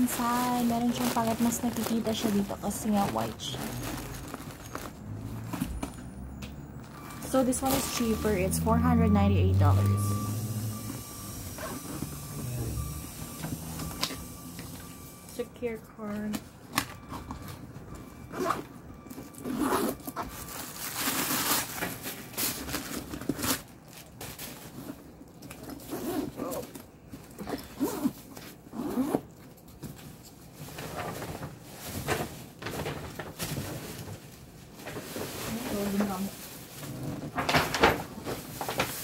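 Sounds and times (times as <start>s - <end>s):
bag scraping and rustling: 0.0s - 6.0s
backpack zippers: 19.4s - 20.1s, 25.8s - 26.6s, 27.4s - 29.3s.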